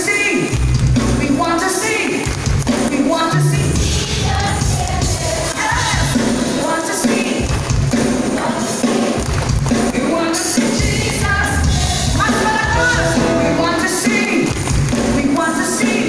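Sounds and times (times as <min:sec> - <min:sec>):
people singing: 0:03.0 - 0:09.2, 0:09.8 - 0:16.0
worship band playing: 0:12.0 - 0:15.5.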